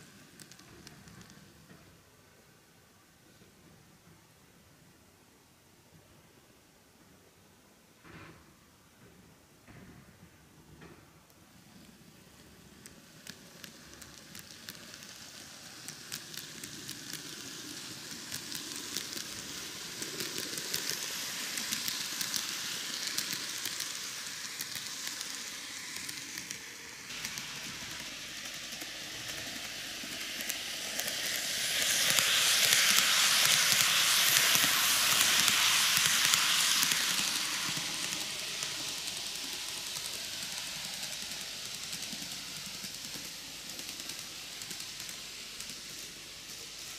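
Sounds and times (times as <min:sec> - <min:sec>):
model train motor and wheels hiss: 0:00.0 - 0:02.7, 0:10.6 - 0:46.9
wheels clicking over rail joints: 0:12.8 - 0:46.9.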